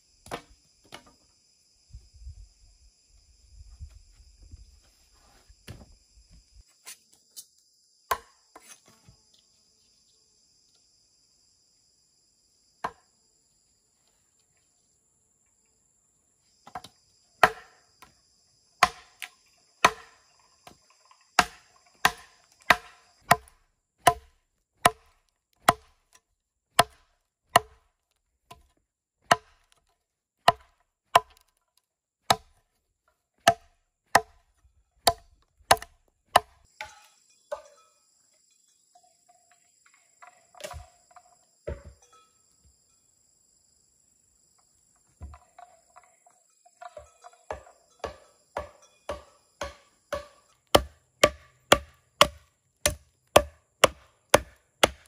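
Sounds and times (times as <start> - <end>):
machete chopping wood: 0.2 - 1.2, 8.1 - 8.8, 16.7 - 17.8, 18.8 - 20.8, 21.4 - 26.2, 26.8 - 27.9, 28.5 - 29.8, 30.4 - 31.6, 32.2 - 32.6, 33.4 - 37.6, 40.6 - 41.0, 46.9 - 55.0.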